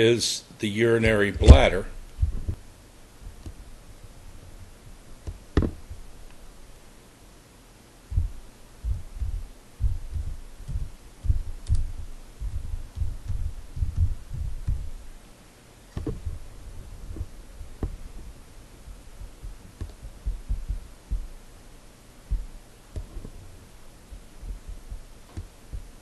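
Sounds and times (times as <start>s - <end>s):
keyboard keystrokes thumping: 5.2s - 6.0s, 8.2s - 15.0s, 16.0s - 18.3s, 18.9s - 21.4s, 22.3s - 23.4s.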